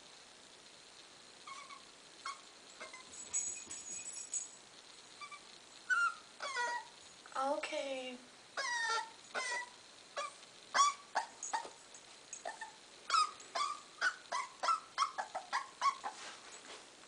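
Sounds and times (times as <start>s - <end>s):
puppy whimpering: 1.4s - 3.1s, 5.2s - 6.9s, 8.6s - 11.8s, 12.4s - 16.2s.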